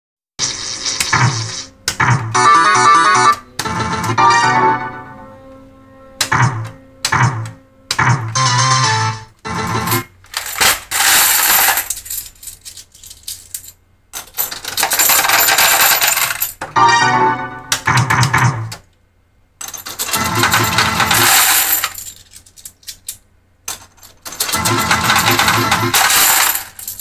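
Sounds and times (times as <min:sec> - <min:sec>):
metal medals clattering into tray: 0:09.9 - 0:16.6, 0:19.6 - 0:27.0.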